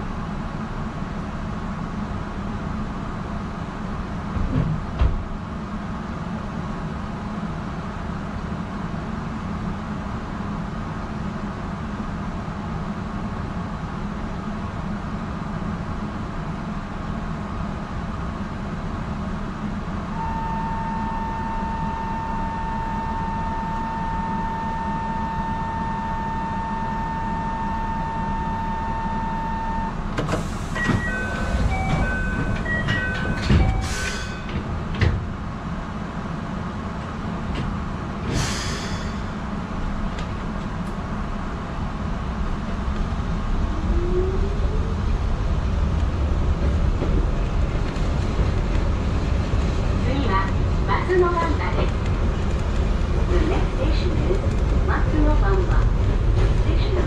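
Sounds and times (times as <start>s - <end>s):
electric train hum: 0.0s - 57.0s
train door shutting: 4.3s - 5.4s, 20.2s - 35.5s, 37.4s - 41.0s.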